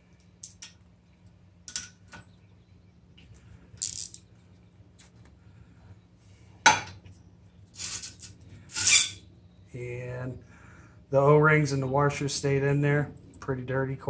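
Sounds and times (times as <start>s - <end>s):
steady low hum: 0.0s - 14.0s
metal parts and tools clinking: 3.8s - 4.4s
metal scraping: 7.8s - 9.2s.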